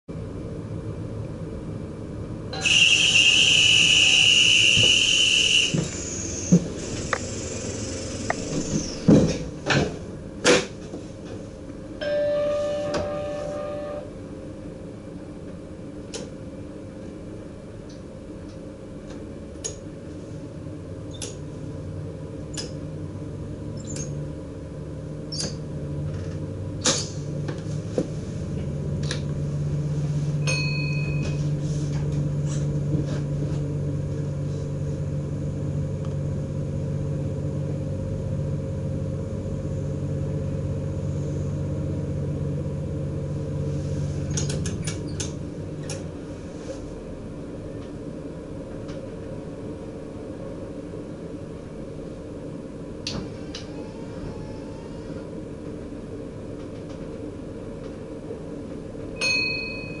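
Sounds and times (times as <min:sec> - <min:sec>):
train engine drone: 0:00.1 - 1:00.0
short beep: 0:02.6 - 0:05.7, 0:12.0 - 0:14.1.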